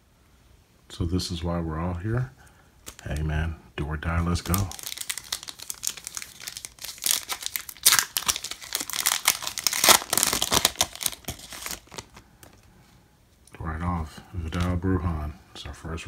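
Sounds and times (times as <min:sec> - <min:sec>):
foil wrapper crinkling and tearing: 0:02.8 - 0:03.3, 0:04.2 - 0:12.6.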